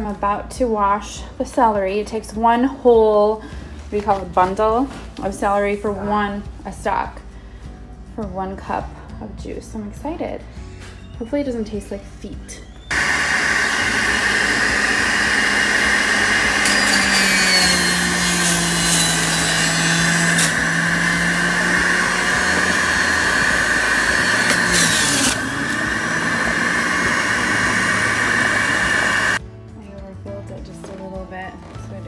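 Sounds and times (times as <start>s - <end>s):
electric juicer motor whining: 12.8s - 29.4s
harsh grinding: 12.9s - 29.4s.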